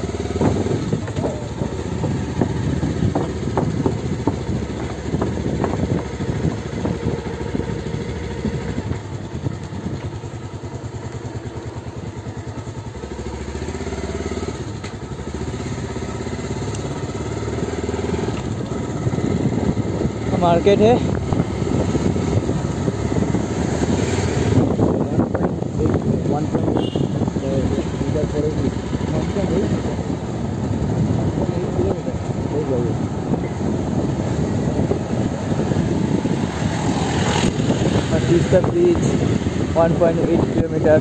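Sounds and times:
motorcycle engine running: 0.0s - 41.0s
wheels knocking on wooden planks: 0.4s - 6.2s.

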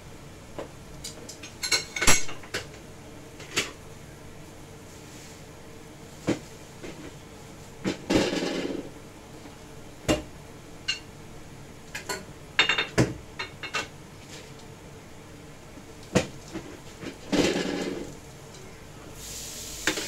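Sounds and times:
utensils and dishes clinking: 1.1s - 2.7s
dishes clattering: 1.6s - 2.7s, 12.0s - 13.9s.

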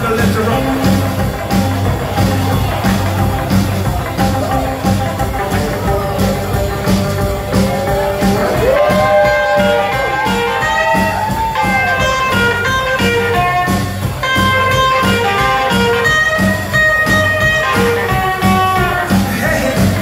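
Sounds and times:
upright bass pulse: 0.0s - 20.0s
electric guitar solo: 7.5s - 19.2s.

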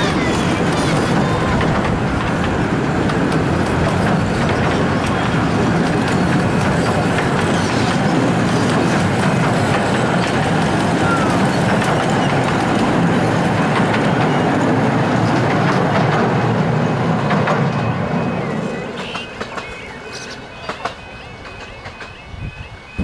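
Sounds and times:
small rail clicks: 0.0s - 14.4s, 19.0s - 22.2s
train wheels rumbling on rails: 0.0s - 23.0s.

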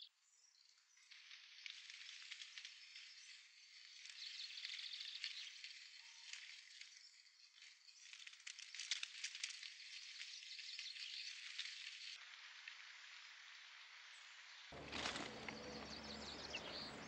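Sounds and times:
nestlings begging chatter: 14.8s - 17.0s.

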